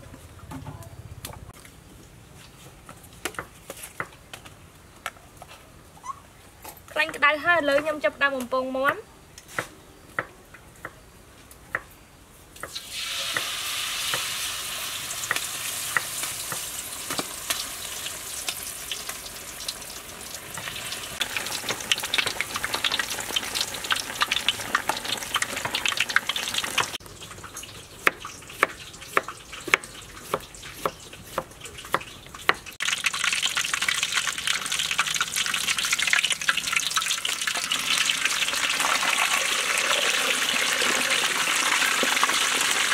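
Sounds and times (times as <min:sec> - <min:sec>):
oil sizzling and crackling: 0:12.6 - 0:42.9.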